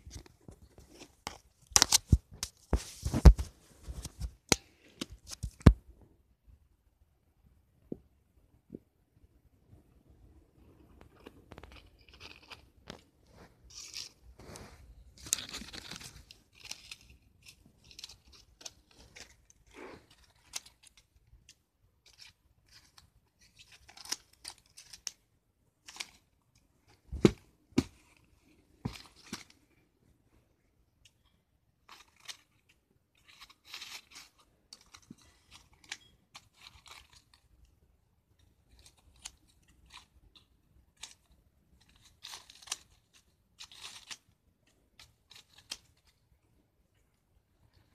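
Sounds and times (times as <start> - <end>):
paper crackling and rustling: 0.0 - 5.8, 11.0 - 21.3
scissors snipping paper: 15.2 - 25.2, 38.7 - 46.2.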